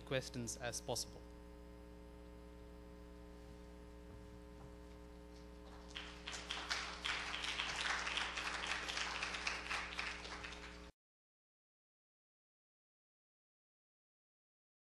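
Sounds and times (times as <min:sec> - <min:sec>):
steady mains hum: 0:00.0 - 0:10.9
audience applauding: 0:05.6 - 0:10.9.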